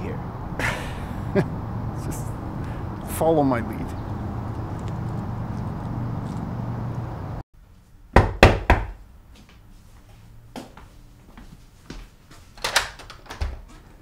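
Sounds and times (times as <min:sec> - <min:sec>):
knocks on a door: 0:08.2 - 0:09.0.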